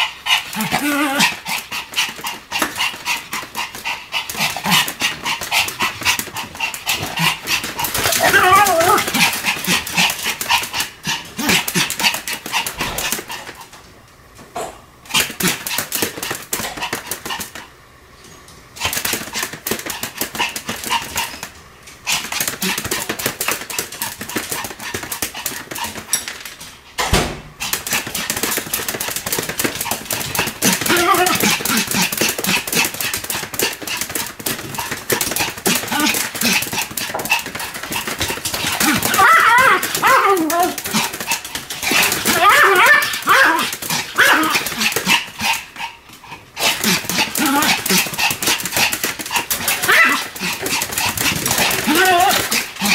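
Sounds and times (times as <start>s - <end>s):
small dog barking rapidly: 4.4s - 10.5s, 27.6s - 34.0s, 34.8s - 45.6s, 46.6s - 52.9s.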